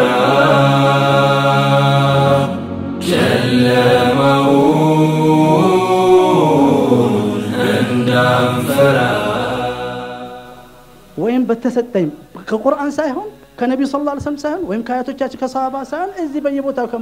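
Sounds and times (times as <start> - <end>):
person chanting long notes: 0.0 - 10.7.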